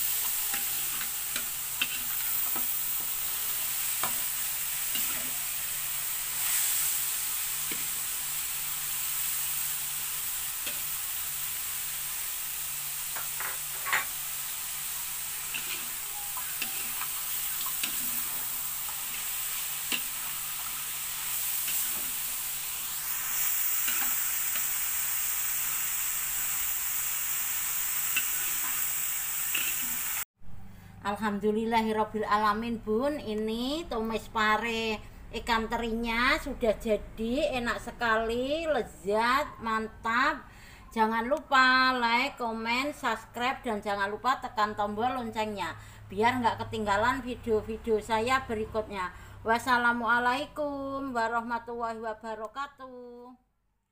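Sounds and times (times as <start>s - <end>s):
food sizzling in a wok: 0.0s - 30.3s
metal spatula scraping a pan: 0.1s - 5.6s, 15.4s - 20.8s, 21.5s - 22.3s.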